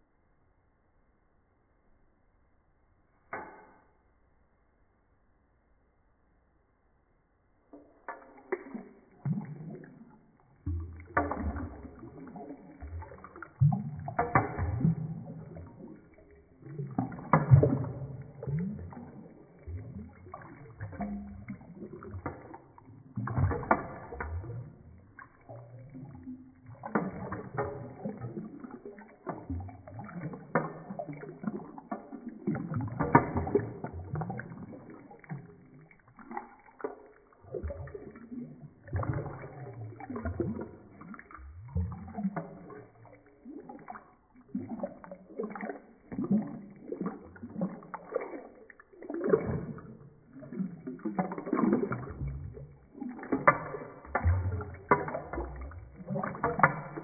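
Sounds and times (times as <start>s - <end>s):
water sloshing and gurgling in sink: 3.3s - 4.1s, 7.6s - 57.0s.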